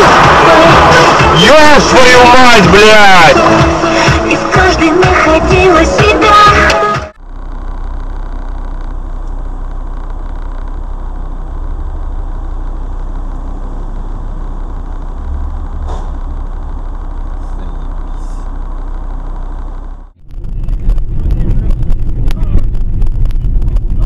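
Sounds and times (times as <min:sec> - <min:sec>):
car engine idling: 0:00.0 - 0:24.0.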